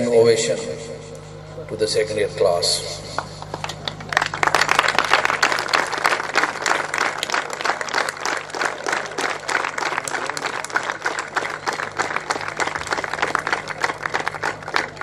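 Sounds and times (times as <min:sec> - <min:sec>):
crowd applauding: 0:03.1 - 0:15.0.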